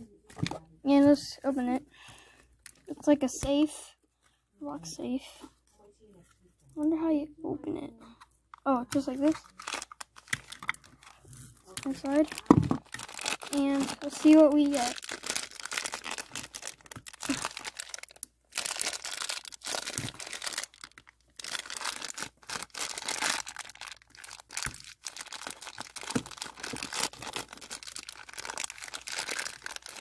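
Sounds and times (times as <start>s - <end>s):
plastic packet crinkling: 8.6s - 30.0s.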